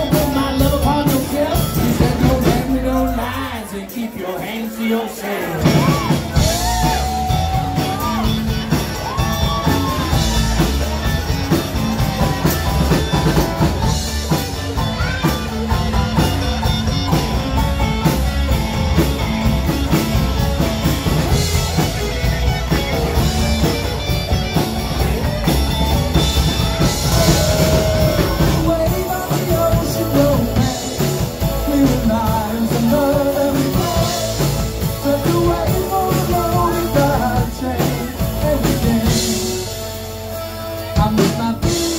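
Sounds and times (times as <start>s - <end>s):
drum kit: 0.0s - 3.7s, 5.4s - 41.9s
electric guitar: 0.0s - 3.9s, 5.5s - 41.9s
person singing: 0.0s - 10.9s, 26.1s - 41.9s.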